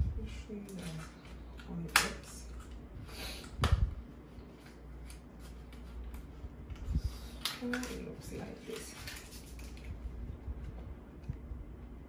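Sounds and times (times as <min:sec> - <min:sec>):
packaging rustling and clicking: 0:04.5 - 0:10.0.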